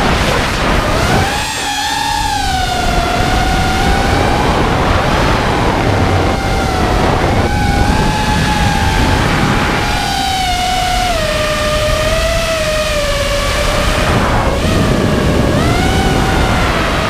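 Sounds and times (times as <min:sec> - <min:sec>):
drone motors whining: 0:00.0 - 0:17.0
wind noise: 0:00.0 - 0:17.0.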